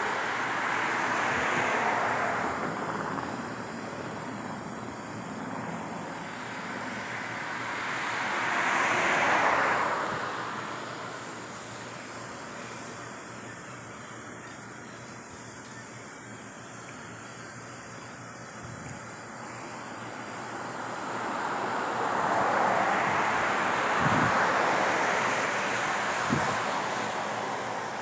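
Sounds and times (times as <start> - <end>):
vehicle passing by: 0.0 - 11.6, 20.0 - 28.0.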